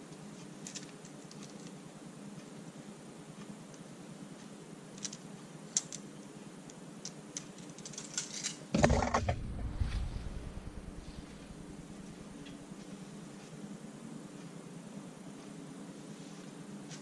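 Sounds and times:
metal tape measure clicks and rattles: 7.4s - 8.7s
rustling and knocking handling noise: 8.8s - 13.0s.

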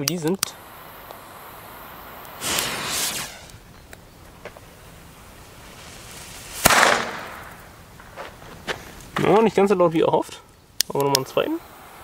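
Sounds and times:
fuse fizzing: 0.0s - 7.7s
firecracker bang: 2.1s - 3.7s, 5.7s - 8.3s.

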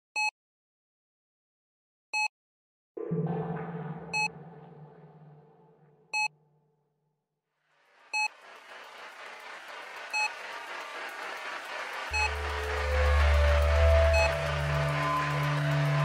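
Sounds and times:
deep bass tone: 3.0s - 6.0s
electronic drone: 12.1s - 16.0s.

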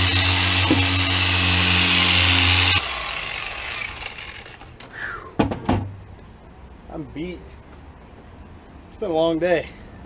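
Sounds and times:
polisher running: 0.0s - 3.4s.

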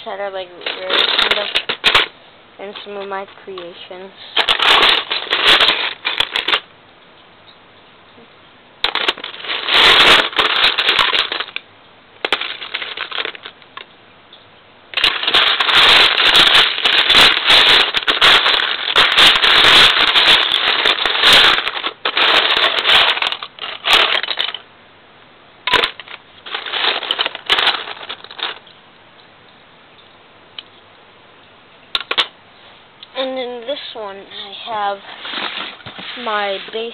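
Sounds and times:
plastic bricks clattering: 0.0s - 6.7s, 8.8s - 11.6s, 12.2s - 13.9s, 14.9s - 24.6s, 25.7s - 28.6s, 32.0s - 32.3s.

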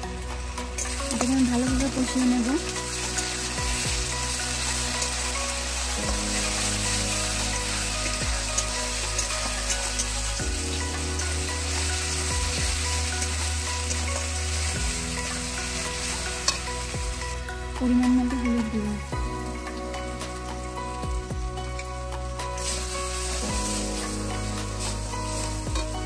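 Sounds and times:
onions sizzling in oil: 0.0s - 26.0s.

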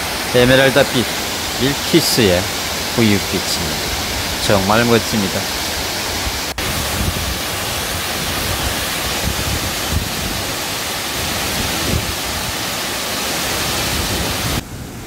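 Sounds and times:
waterfall rushing into pool: 0.0s - 15.0s.

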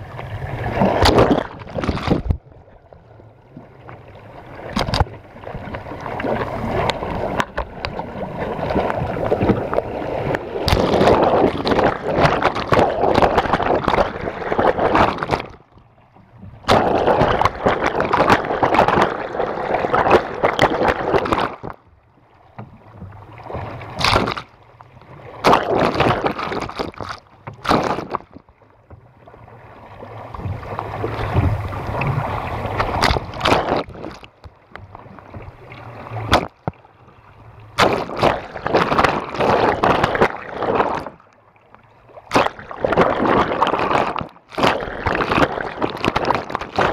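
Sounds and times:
waves rushing against boat hull: 0.0s - 2.7s, 3.8s - 21.9s, 22.5s - 41.4s, 42.1s - 46.9s
water splashes on camera lens: 16.6s - 19.2s, 37.8s - 41.2s.

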